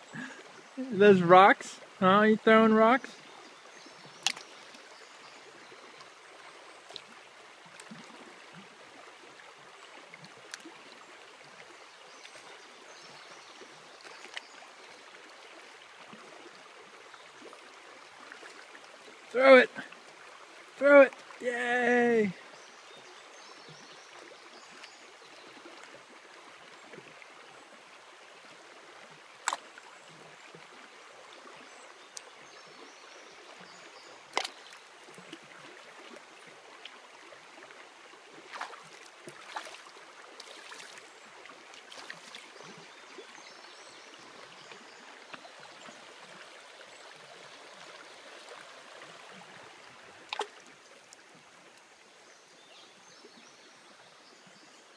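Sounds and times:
creek running over gravel: 0.0s - 54.9s
rocks splashing into water: 29.4s - 29.8s, 34.3s - 35.4s, 38.4s - 41.1s, 41.8s - 42.6s, 50.2s - 50.8s.

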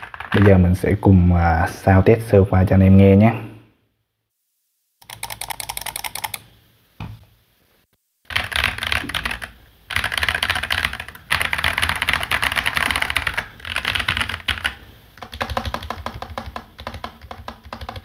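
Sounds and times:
mechanical keyboard typing: 0.0s - 0.6s, 5.0s - 6.5s, 8.3s - 18.0s.

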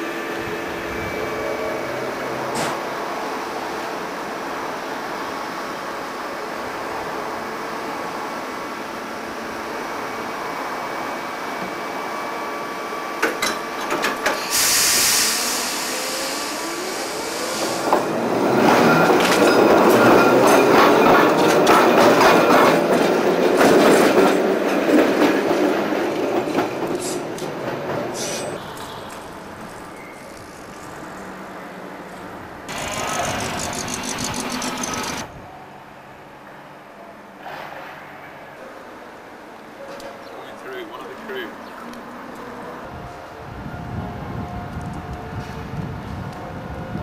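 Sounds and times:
tram rumble starting to move: 0.0s - 35.8s, 40.1s - 47.0s
tram humming: 0.0s - 47.0s
loud hiss: 14.4s - 18.1s
vehicle noise: 28.2s - 35.4s.

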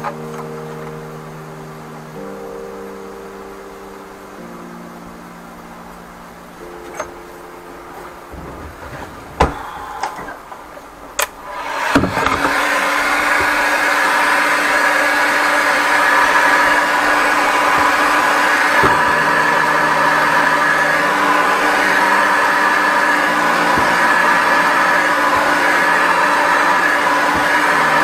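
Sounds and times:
heat gun blowing with whirring hum: 11.5s - 28.0s.

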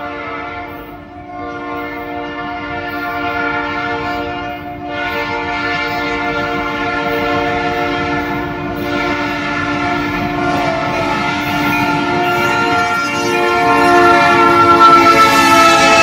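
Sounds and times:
locomotive air horn blasts: 0.0s - 16.0s
train rumbling: 0.0s - 16.0s.

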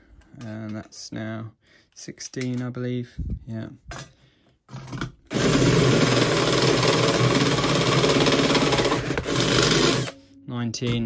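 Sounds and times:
cordless drill cutting metal: 5.3s - 10.2s.

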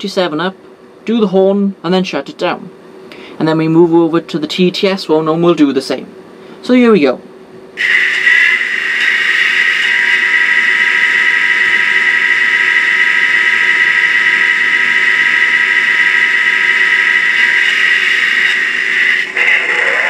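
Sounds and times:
model locomotive diesel engine sound: 7.8s - 20.0s
steady high tone: 7.8s - 20.0s.

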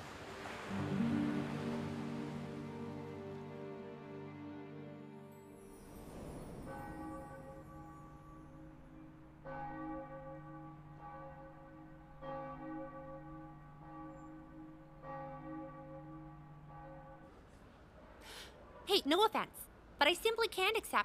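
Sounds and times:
bell tolling: 5.3s - 17.2s.

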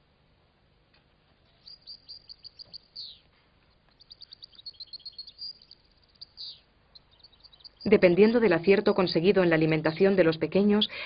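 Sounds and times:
goldfinch twittering: 1.6s - 3.2s, 3.9s - 11.0s.

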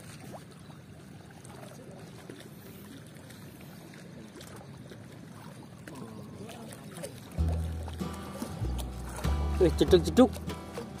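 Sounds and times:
river water rushing: 5.3s - 11.0s.

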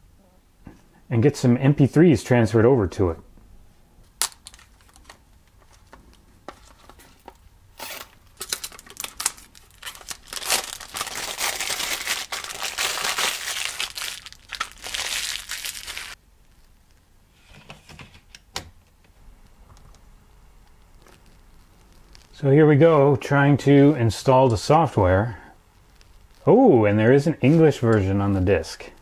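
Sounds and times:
packaging crinkling and tearing: 4.2s - 7.1s, 7.7s - 16.8s, 20.7s - 22.4s, 25.8s - 26.5s.

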